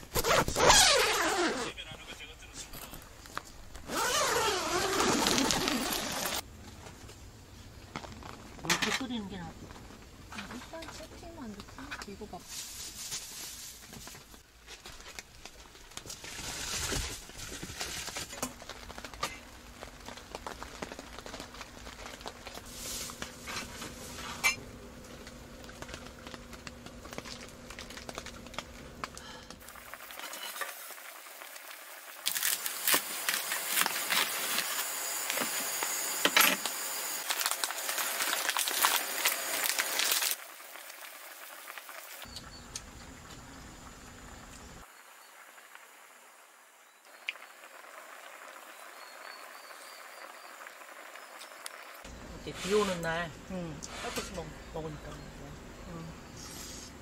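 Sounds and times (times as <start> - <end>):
camping gear rustling: 0.0 - 1.6, 2.8 - 11.0, 11.7 - 36.0, 37.2 - 42.3.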